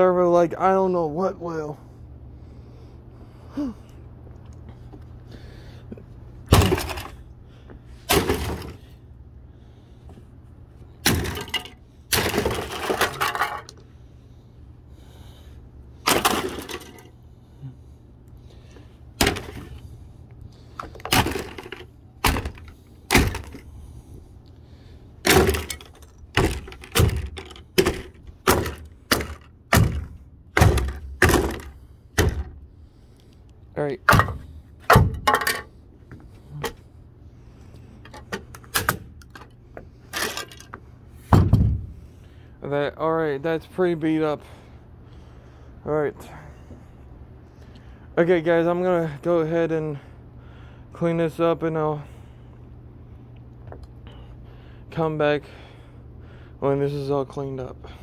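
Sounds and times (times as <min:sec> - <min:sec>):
sledgehammer smashing plastic: 0:06.5 - 0:07.2, 0:08.1 - 0:08.8, 0:11.0 - 0:13.7, 0:16.0 - 0:17.0, 0:19.2 - 0:19.8, 0:21.1 - 0:23.6, 0:25.2 - 0:32.5, 0:34.1 - 0:35.5
heavy blows on plastic: 0:25.2 - 0:32.6.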